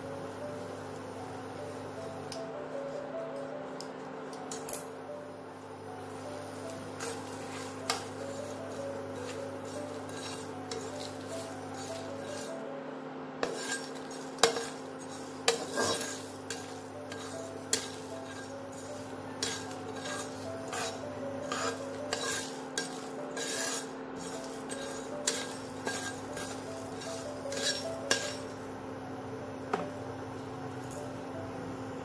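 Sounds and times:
spatula scraping seeds in pan: 0:06.7 - 0:12.6, 0:13.4 - 0:28.5.

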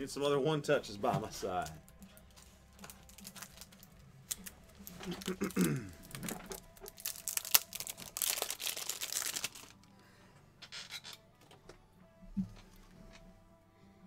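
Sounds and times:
card packaging crinkling: 0:01.4 - 0:09.9.

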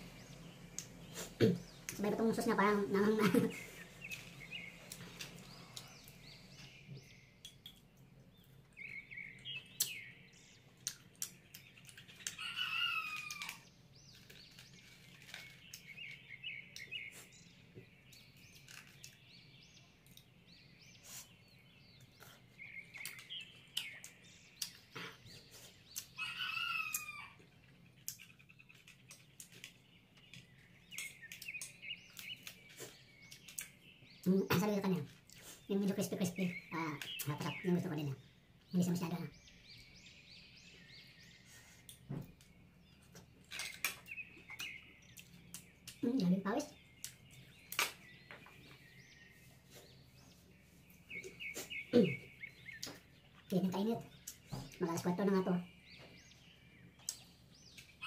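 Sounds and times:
birds chirping: 0:00.0 - 0:58.0
person chewing food: 0:10.7 - 0:12.4.

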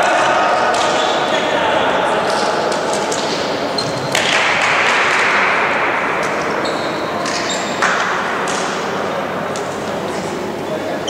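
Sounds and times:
crowd cheering and shouting: 0:00.0 - 0:03.2.

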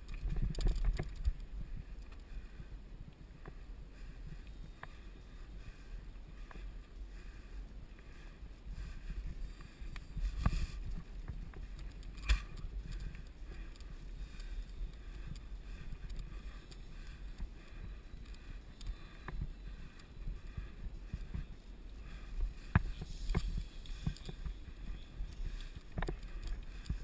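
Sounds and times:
bike clicks and rattles: 0:00.0 - 0:02.6, 0:09.0 - 0:27.0
bike tyre noise: 0:03.3 - 0:27.0.

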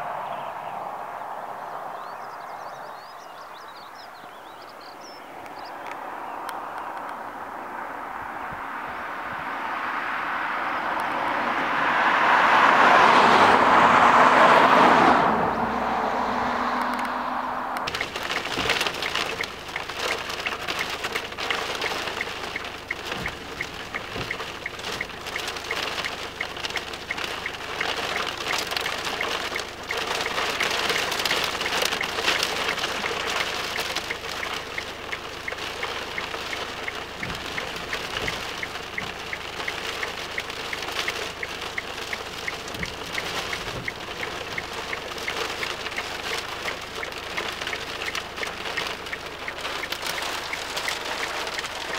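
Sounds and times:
rain hitting car windscreen: 0:12.0 - 0:51.9.

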